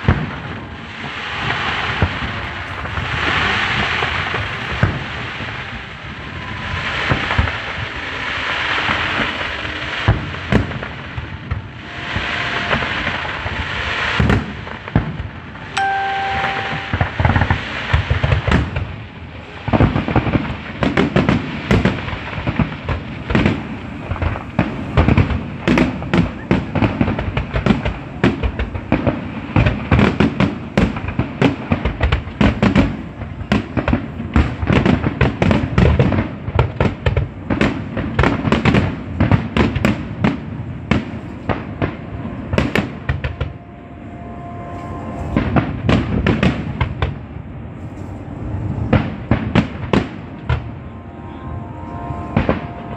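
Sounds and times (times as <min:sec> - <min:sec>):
fireworks shells bursting: 0:11.8 - 0:18.8.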